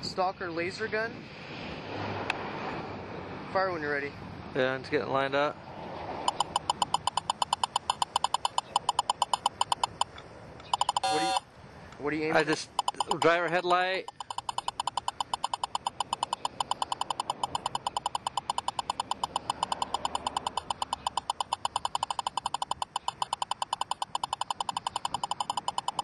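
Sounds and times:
rapid high beeps: 0:06.2 - 0:11.5, 0:12.3 - 0:26.0.

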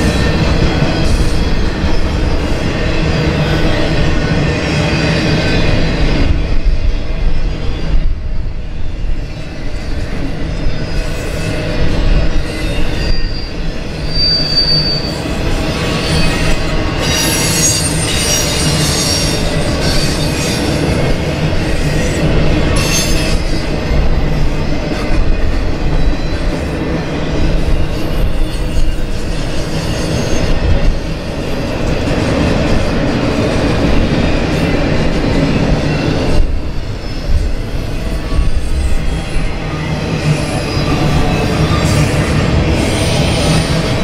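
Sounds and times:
train wheels rumbling on rail: 0:00.0 - 0:44.0
high-pitched wheel squeals: 0:12.4 - 0:20.7.

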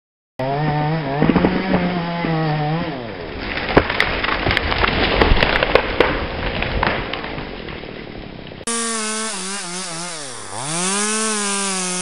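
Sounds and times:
chainsaw cutting at high revs: 0:00.4 - 0:03.1, 0:08.7 - 0:12.0.

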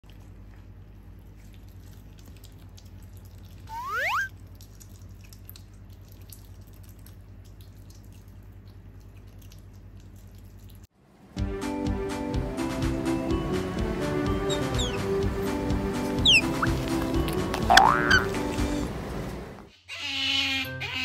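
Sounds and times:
otter chewing: 0:00.0 - 0:10.9, 0:14.4 - 0:18.8
otter squeak: 0:03.7 - 0:04.3, 0:14.5 - 0:15.1, 0:16.2 - 0:16.8.

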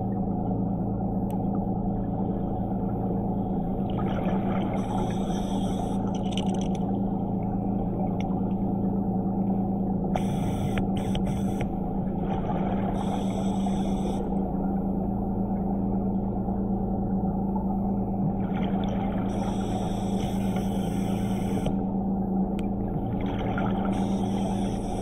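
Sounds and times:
underwater motor and propeller hum: 0:00.0 - 0:25.0
scuba regulator bubbles hissing: 0:23.9 - 0:25.0.

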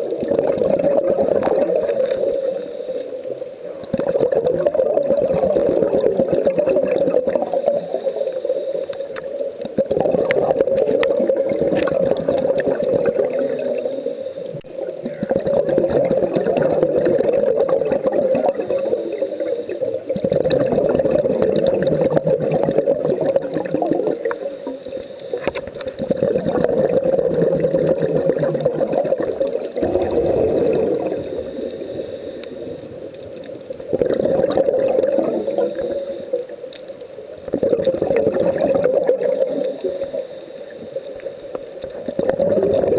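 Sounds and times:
exhaled bubbles gurgling underwater: 0:00.0 - 0:42.9
regulator inhale hiss: 0:01.8 - 0:03.4, 0:07.4 - 0:09.2, 0:13.3 - 0:14.6, 0:18.5 - 0:20.0, 0:24.3 - 0:25.8, 0:30.1 - 0:33.1, 0:35.2 - 0:36.6, 0:39.2 - 0:41.6.

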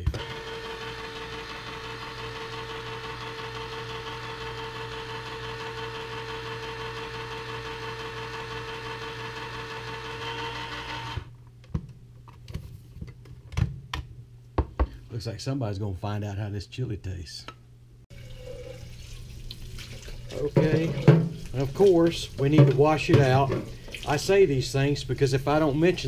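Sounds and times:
electric can opener running: 0:00.0 - 0:11.3.

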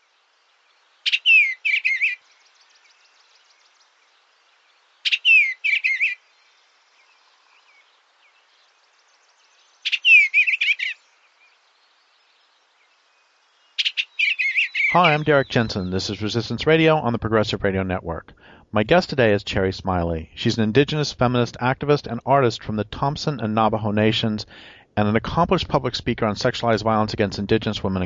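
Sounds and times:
songbird singing: 0:00.0 - 0:24.4.

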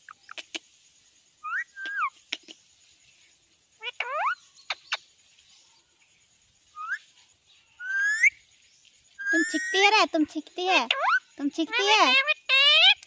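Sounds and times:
parakeet whistled calls: 0:07.8 - 0:08.4.

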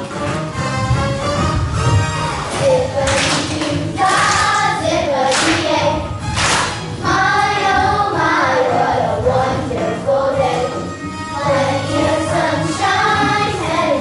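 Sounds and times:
group of voices singing: 0:02.5 - 0:06.0, 0:07.0 - 0:14.0.

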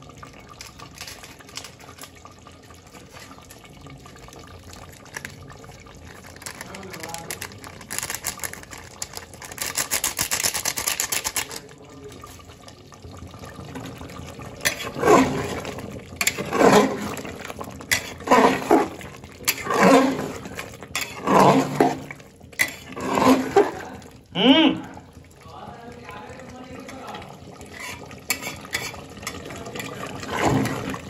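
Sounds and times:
ladle scraping in a pot: 0:00.6 - 0:02.1, 0:06.0 - 0:11.6, 0:14.6 - 0:24.0, 0:27.6 - 0:31.0
fast fine rattle: 0:06.2 - 0:11.6.

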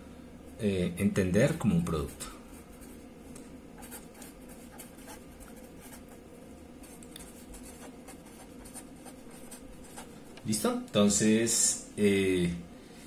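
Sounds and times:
marker pen scratching on paper: 0:02.0 - 0:03.0, 0:03.8 - 0:06.2, 0:06.8 - 0:10.1.

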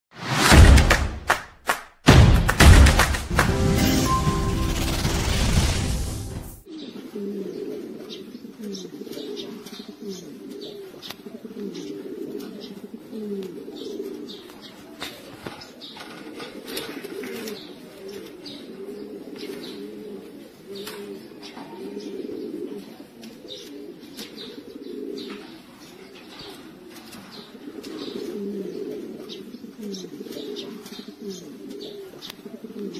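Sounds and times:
loud intro sound: 0:00.1 - 0:06.6
pigeons cooing: 0:06.7 - 0:32.9.

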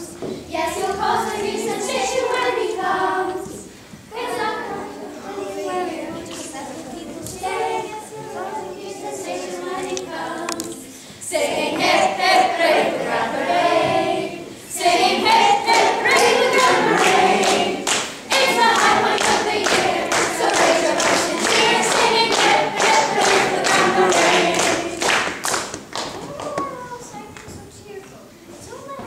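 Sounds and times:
group of people singing: 0:00.0 - 0:25.6
hands clapping along: 0:15.2 - 0:26.7.

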